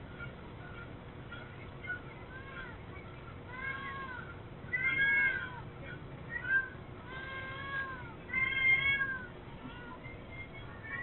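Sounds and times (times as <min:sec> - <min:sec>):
cat meowing: 0:06.4 - 0:10.0.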